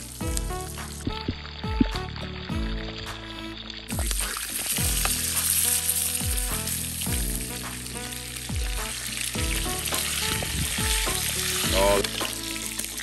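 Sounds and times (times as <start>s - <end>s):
meat sizzling in frying pan: 0.0s - 13.0s.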